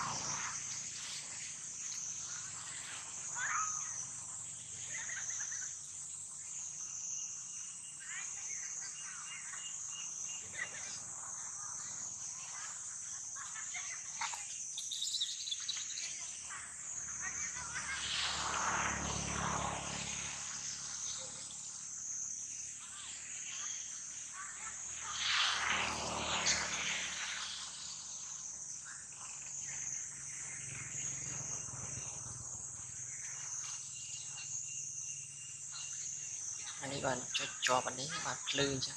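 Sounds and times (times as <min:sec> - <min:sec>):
high-pitched insect chorus: 0:00.0 - 0:38.9.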